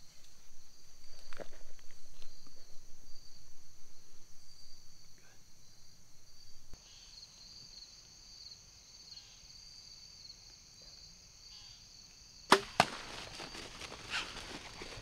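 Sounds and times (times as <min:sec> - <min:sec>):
crickets chirping: 0:00.0 - 0:15.0
arrow striking smack: 0:12.5 - 0:13.1
deer rustling and footfalls: 0:12.5 - 0:15.0.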